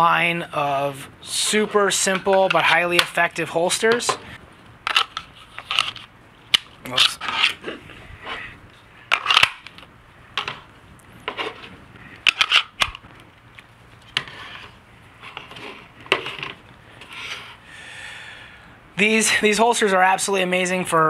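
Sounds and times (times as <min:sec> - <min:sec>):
pistols clicking into plastic holsters: 0:04.9 - 0:07.2
guns scraping on a wooden table: 0:07.1 - 0:08.5, 0:10.4 - 0:12.7, 0:14.1 - 0:17.6.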